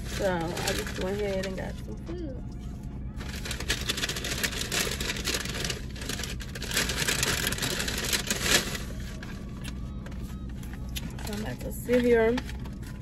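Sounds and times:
low hum: 0.0s - 13.0s
food packaging rustling: 3.2s - 13.0s.

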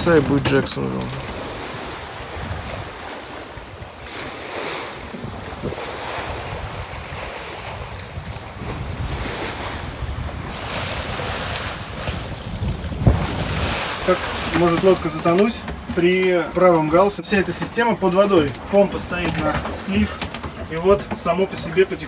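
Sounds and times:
sea water rushing along hull: 0.0s - 22.0s
wind buffeting microphone: 0.0s - 22.0s.

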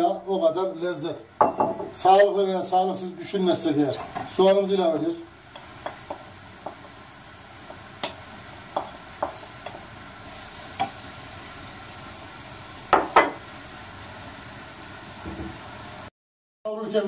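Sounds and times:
onion sizzling in pan: 0.0s - 16.1s
wooden spoon tapping and scraping: 4.0s - 6.9s, 7.7s - 9.8s.

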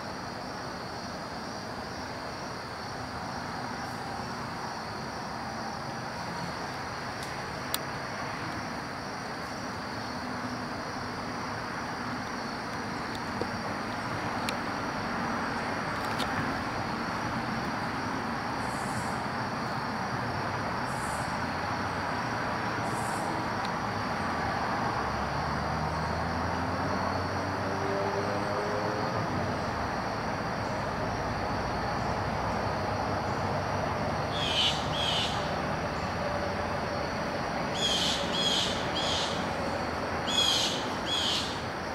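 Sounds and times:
distant vehicle engine: 10.2s - 41.9s
bird calls: 34.3s - 35.5s, 37.8s - 39.5s, 40.2s - 41.6s.

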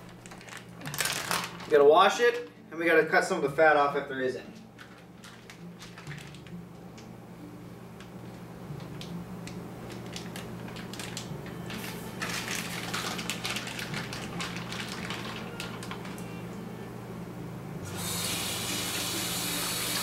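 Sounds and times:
plastic packaging crackling: 0.0s - 2.5s, 4.5s - 7.1s, 8.8s - 16.4s.

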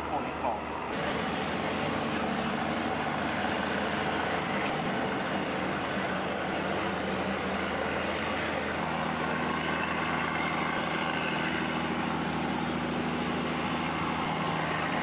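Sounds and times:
distant motor engines droning: 0.0s - 15.0s.

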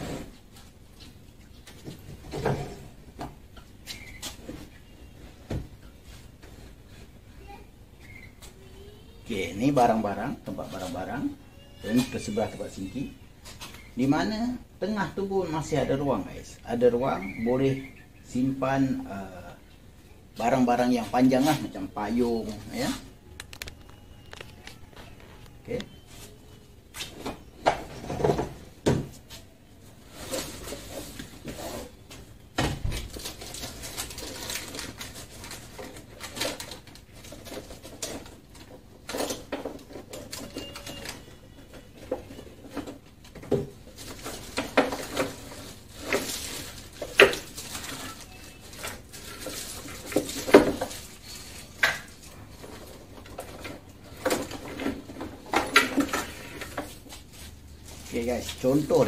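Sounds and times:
things handled in wooden cabinet: 33.0s - 57.1s.

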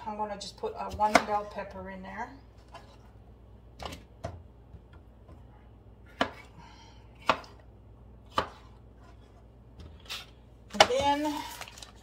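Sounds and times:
knife chopping on plastic board: 0.8s - 1.5s, 6.1s - 6.5s, 7.2s - 7.6s, 8.3s - 8.7s.

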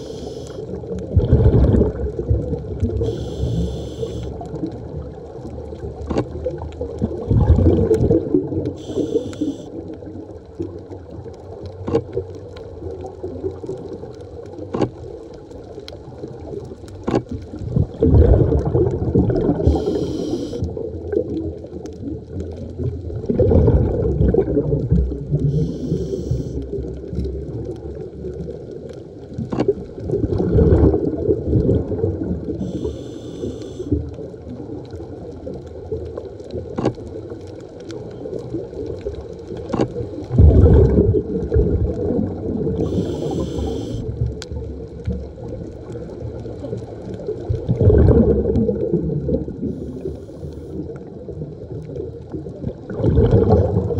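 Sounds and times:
diver inhaling through regulator: 0.0s - 0.7s, 3.0s - 4.4s, 8.8s - 9.8s, 19.5s - 20.7s, 25.4s - 26.6s, 32.6s - 34.0s, 42.8s - 44.2s
exhaled bubbles rumbling: 0.0s - 53.9s.

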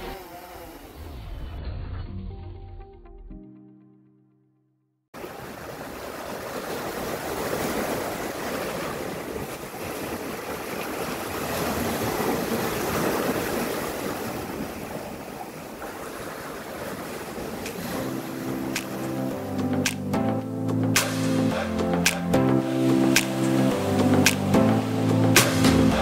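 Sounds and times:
sea waves washing in: 5.2s - 26.0s.

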